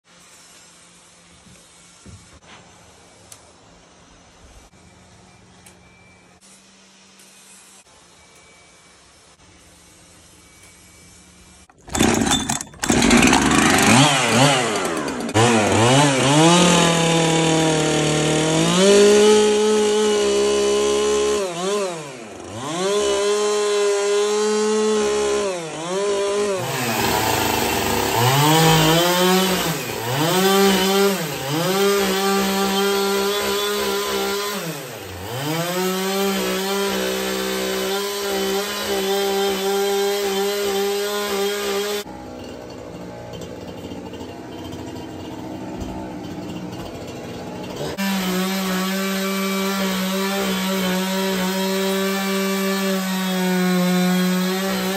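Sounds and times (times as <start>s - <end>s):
chainsaw revving and cutting: 11.8s - 54.9s.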